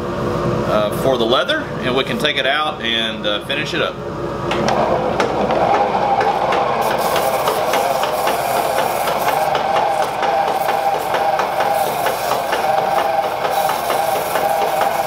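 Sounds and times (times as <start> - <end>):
lathe whirring hum: 0.0 - 15.0
treadle lathe clicking: 6.2 - 15.0
sandpaper on spinning wood: 6.8 - 15.0.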